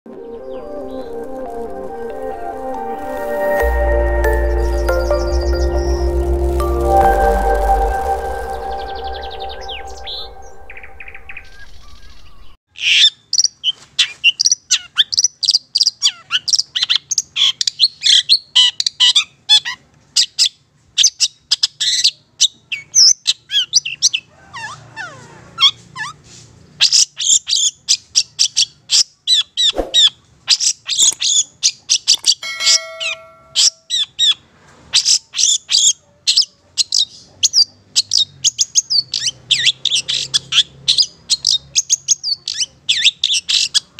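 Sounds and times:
intro music: 0:00.1 - 0:12.4.

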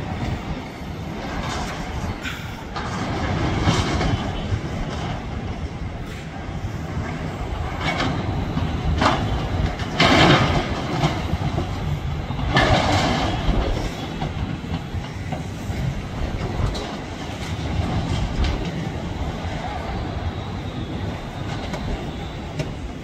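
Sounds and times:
building crashing and clattering: 0:09.9 - 0:11.2.

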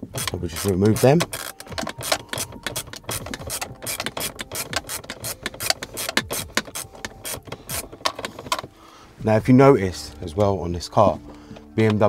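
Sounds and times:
hand ratchet clicking: 0:00.0 - 0:08.7.

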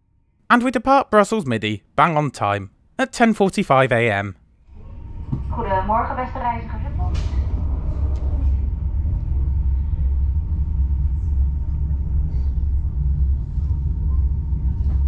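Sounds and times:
train coach rumble: 0:05.4 - 0:15.0.

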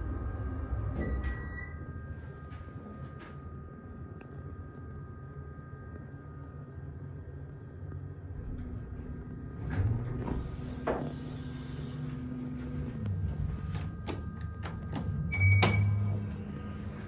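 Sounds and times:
hydraulic elevator hum: 0:00.0 - 0:17.0
elevator doors sliding open: 0:00.8 - 0:01.7, 0:08.3 - 0:17.0.

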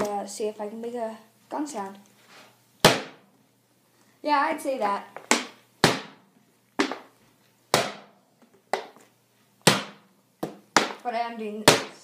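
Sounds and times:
plastic bottle popping: 0:06.8 - 0:07.1, 0:09.6 - 0:11.0.

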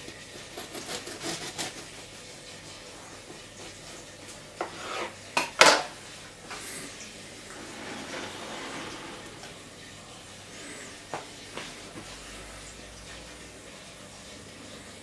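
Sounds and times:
cake scraping on wooden board: 0:04.6 - 0:05.2, 0:07.4 - 0:09.7.

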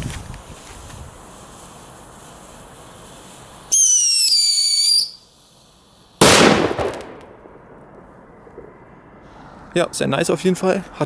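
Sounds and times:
shrill firework whistle: 0:03.7 - 0:05.3
firecracker bang: 0:06.2 - 0:09.4.

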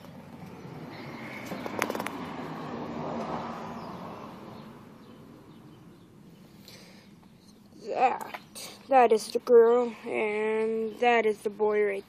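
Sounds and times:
vehicle passing by: 0:00.0 - 0:07.2
sharp clicks: 0:01.4 - 0:02.2.

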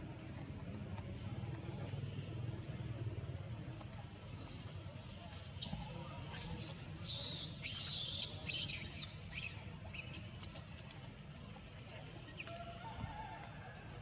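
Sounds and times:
animal chirps and squeaks: 0:06.4 - 0:10.1.

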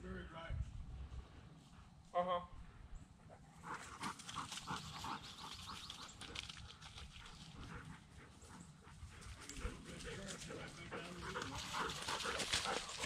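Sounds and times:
dog panting: 0:03.1 - 0:13.0.

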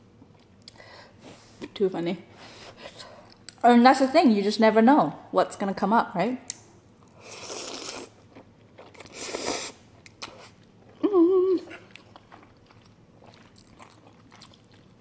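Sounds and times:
quiet chewing: 0:07.0 - 0:15.0
noodles slurped: 0:07.2 - 0:08.1, 0:08.8 - 0:10.5
person humming mmm: 0:11.0 - 0:11.8.

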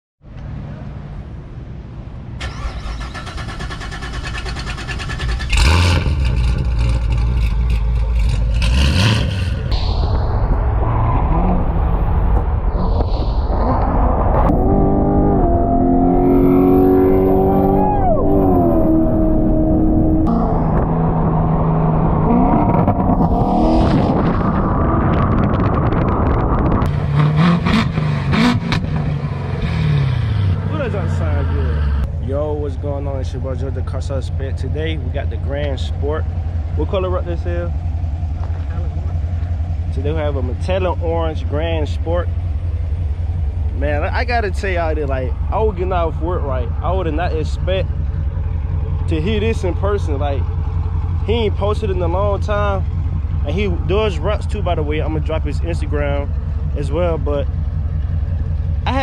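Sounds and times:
car exhaust revving: 0:04.4 - 0:59.0
car engine accelerating and revving: 0:05.3 - 0:32.1.

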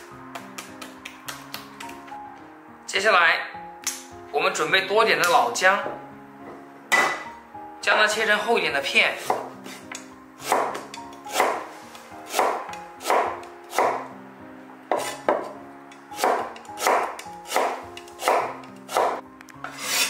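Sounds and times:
soft background music: 0:00.0 - 0:20.0
cleaver chopping on cutting board: 0:09.2 - 0:11.6, 0:12.3 - 0:14.0, 0:14.9 - 0:15.6, 0:16.2 - 0:20.0.

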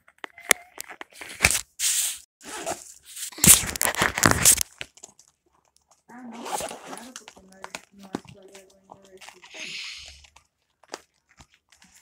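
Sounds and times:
stiff plastic crinkling: 0:02.8 - 0:12.0.

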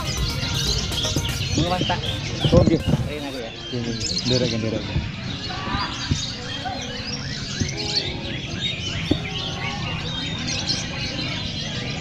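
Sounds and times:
birds chirping and whistling: 0:00.0 - 0:12.0.

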